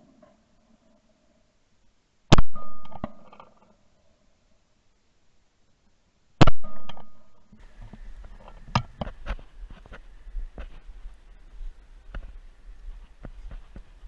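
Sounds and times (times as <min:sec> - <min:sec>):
shotgun shots: 0:02.3 - 0:03.4.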